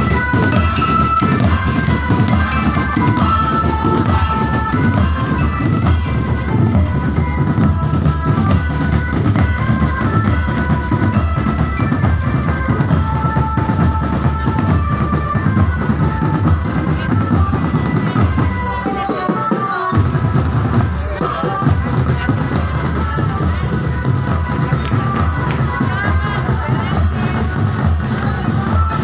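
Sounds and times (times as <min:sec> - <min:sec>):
loud music with heavy drum beat: 0:00.0 - 0:29.0.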